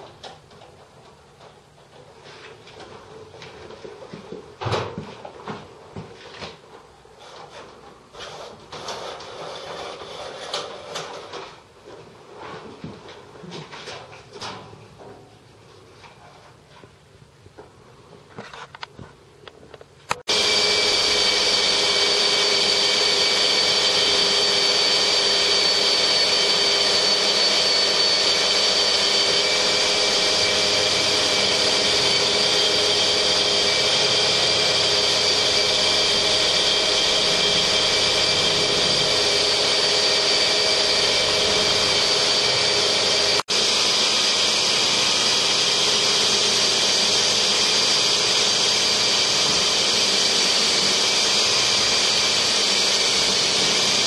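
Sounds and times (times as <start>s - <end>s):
motor whine: 20.2s - 54.0s.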